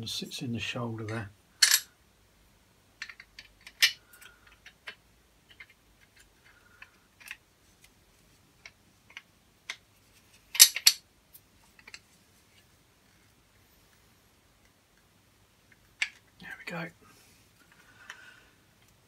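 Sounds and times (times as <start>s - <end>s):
metal parts clattering: 1.6s - 1.9s, 10.5s - 11.0s
steel parts clicking and clinking: 1.6s - 1.9s, 3.0s - 7.4s, 10.5s - 11.0s.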